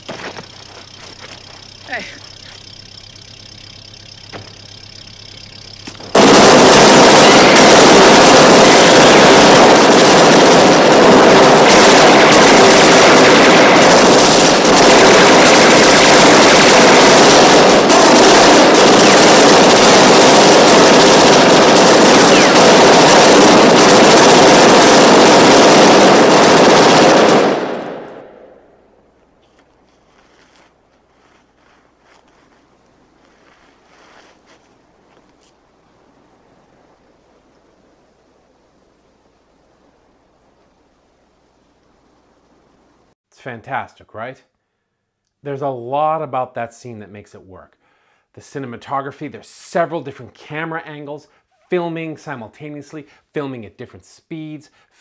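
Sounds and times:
barrage of gunfire: 0:06.0 - 0:28.4.

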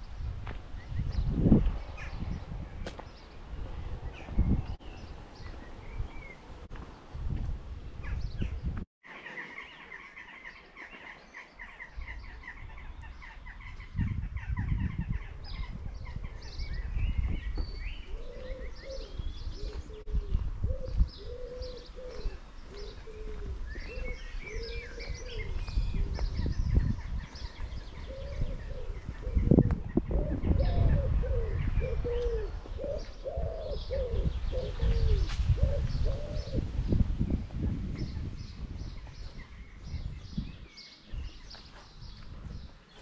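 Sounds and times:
birds chirping and singing: 0:00.0 - 0:43.0
pigeon cooing: 0:18.0 - 0:26.2, 0:27.9 - 0:36.6.

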